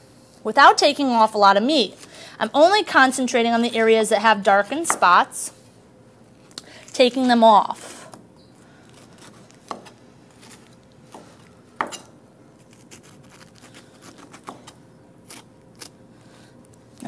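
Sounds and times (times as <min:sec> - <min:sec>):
knife scraping pineapple: 0:08.8 - 0:16.0.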